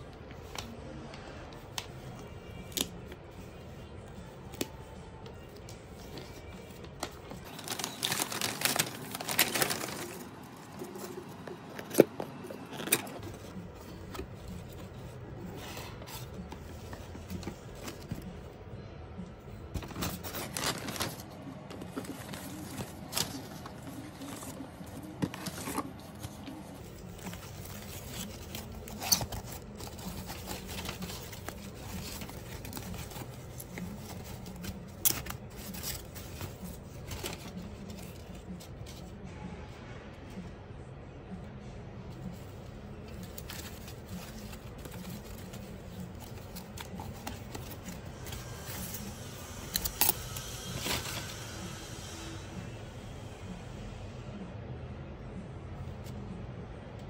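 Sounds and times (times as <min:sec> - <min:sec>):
wrapping paper rustling: 0:05.4 - 0:18.5, 0:19.7 - 0:39.0, 0:42.1 - 0:52.2.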